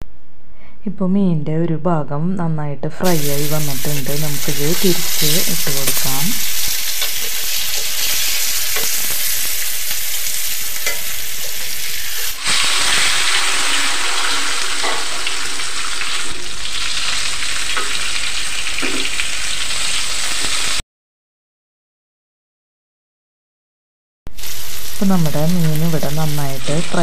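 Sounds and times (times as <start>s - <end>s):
fish sizzling in a pan: 3.1s - 20.8s, 24.3s - 27.0s.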